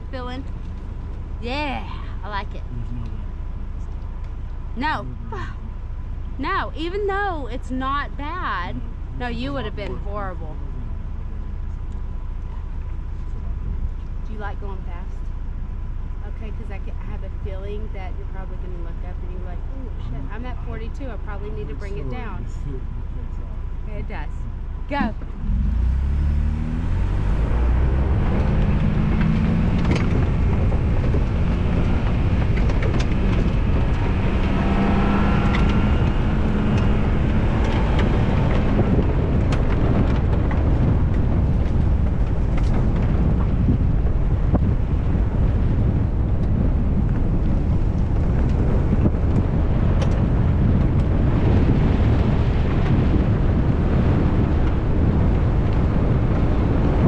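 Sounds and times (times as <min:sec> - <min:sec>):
engine pulling hard: 0:00.0 - 0:57.0
tyres rumbling on dirt: 0:00.0 - 0:57.0
wind buffeting on microphone: 0:23.8 - 0:57.0.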